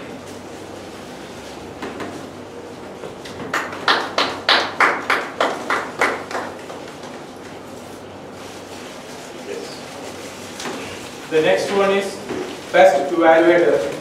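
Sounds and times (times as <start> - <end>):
hand clapping: 3.2 - 7.2.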